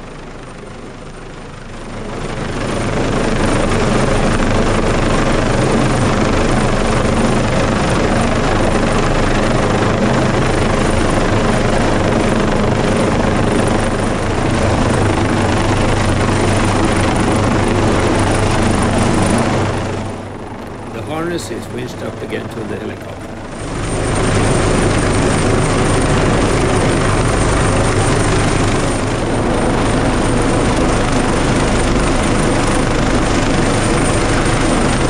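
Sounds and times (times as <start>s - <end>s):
helicopter hovering: 0.0s - 35.0s.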